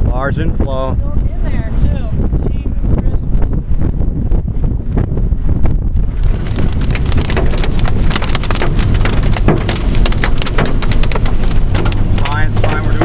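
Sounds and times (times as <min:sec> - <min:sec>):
car rumble: 0:00.0 - 0:13.0
heavy rain on a car: 0:06.0 - 0:13.0.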